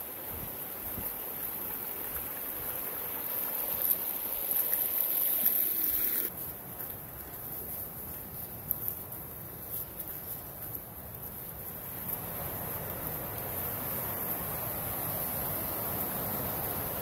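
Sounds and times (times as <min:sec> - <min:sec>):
stream splashing over rocks: 0:00.0 - 0:06.3.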